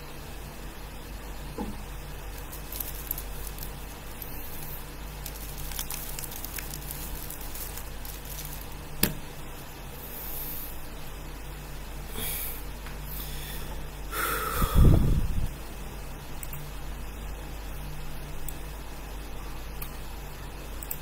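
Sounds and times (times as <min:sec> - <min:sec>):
steady low hum: 0:00.0 - 0:21.0
cloth rustling on plastic cube: 0:02.4 - 0:08.8.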